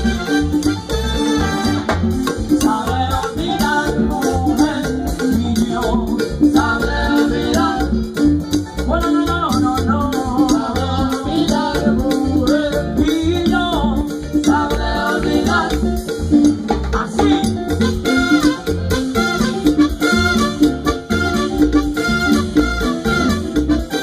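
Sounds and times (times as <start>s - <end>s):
trumpets and saxophones: 0.0s - 2.3s, 17.8s - 24.0s
bass: 0.0s - 24.0s
fast percussion beat: 0.0s - 24.0s.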